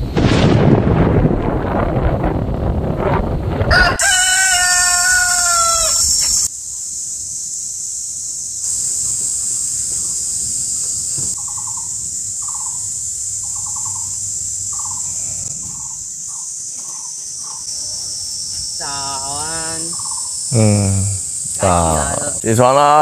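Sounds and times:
high-pitched insect chorus: 0:03.7 - 0:23.0
person's drawn-out voice: 0:18.8 - 0:23.0.

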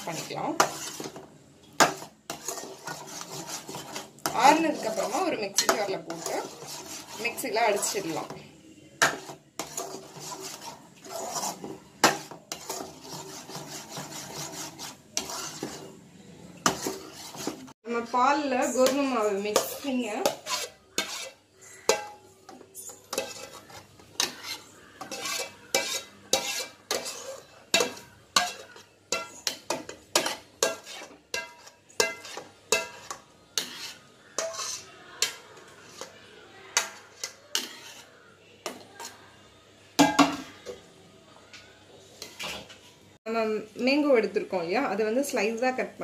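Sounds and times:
spoon scraping metal: 0:00.0 - 0:01.2, 0:01.8 - 0:08.4, 0:09.0 - 0:16.0, 0:16.6 - 0:17.8, 0:18.4 - 0:36.2, 0:36.8 - 0:38.2.

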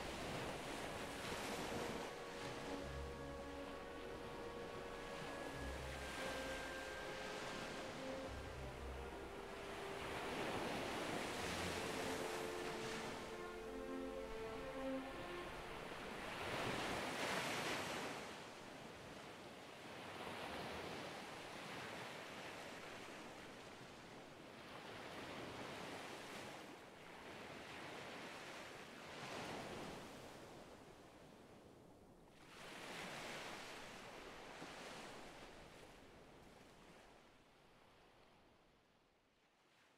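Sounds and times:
held musical chord: 0:01.4 - 0:16.7.

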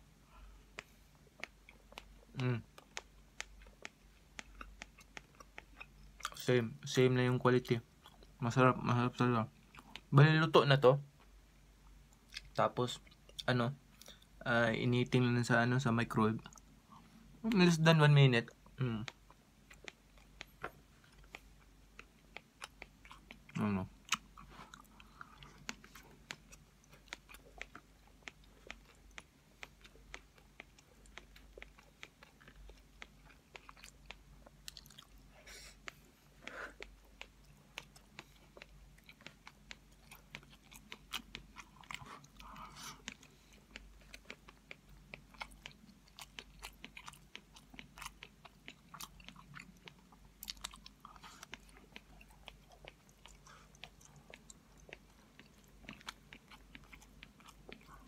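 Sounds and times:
person chewing rice: 0:00.1 - 0:10.3, 0:11.0 - 0:17.8, 0:18.4 - 0:58.0
wet mouth clicks: 0:00.7 - 0:06.5, 0:18.6 - 0:58.0.

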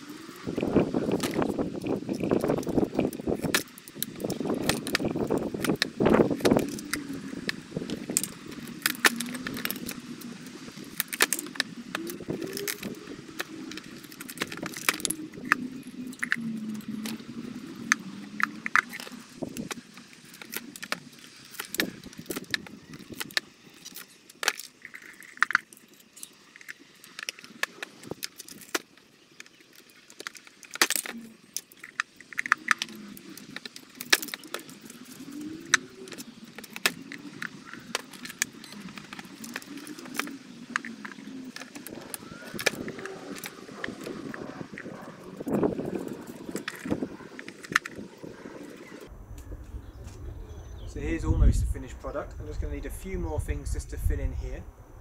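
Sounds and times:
wooden sticks snapping: 0:00.4 - 0:48.0
low wavering hum: 0:34.7 - 0:55.0.

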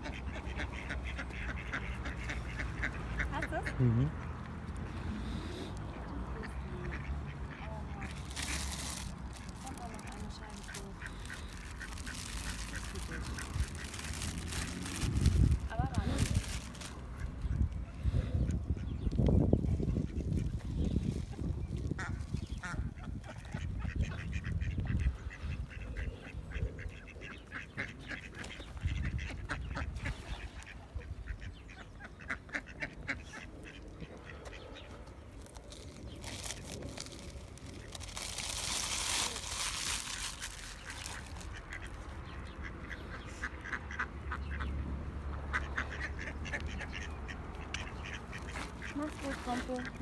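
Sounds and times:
ducks quacking: 0:00.0 - 0:19.1, 0:21.9 - 0:35.0, 0:36.3 - 0:50.0.

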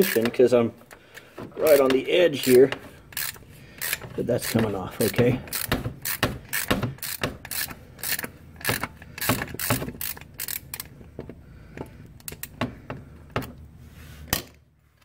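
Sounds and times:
ratchet clicking: 0:01.7 - 0:11.0.

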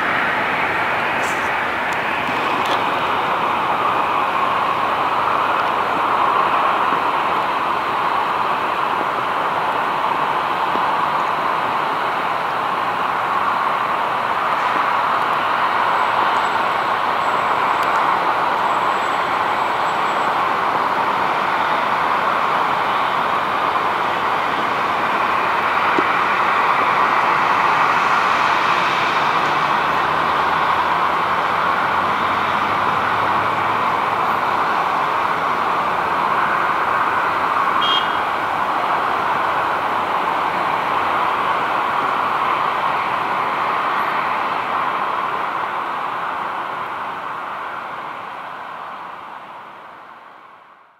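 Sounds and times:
jet engines at takeoff power: 0:00.0 - 0:50.7.

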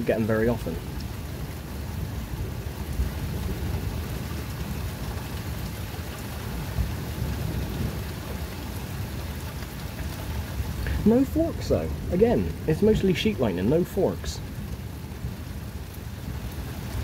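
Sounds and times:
steady rain falling: 0:00.0 - 0:17.0
low thunder rumble: 0:00.8 - 0:13.8.

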